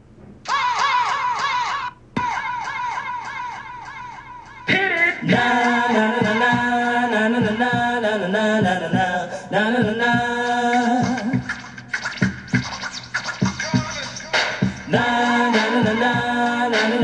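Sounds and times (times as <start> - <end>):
person singing melody: 2.2 - 11.6, 13.6 - 17.0
drum beat: 4.7 - 6.8, 7.4 - 8.0, 9.8 - 17.0.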